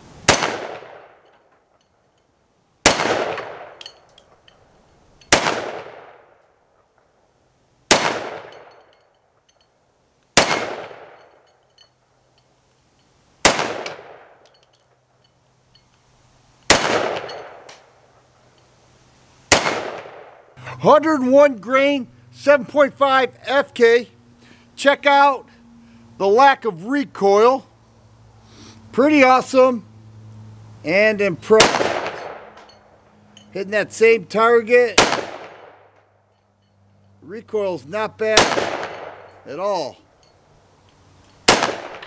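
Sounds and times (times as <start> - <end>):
pistol shots: 0.2 - 1.2, 2.8 - 3.8, 5.3 - 6.3, 7.9 - 8.7, 10.4 - 11.3, 13.4 - 14.4, 16.7 - 17.7, 19.5 - 20.4, 31.6 - 32.6, 35.0 - 35.9, 38.3 - 39.4, 41.4 - 42.0.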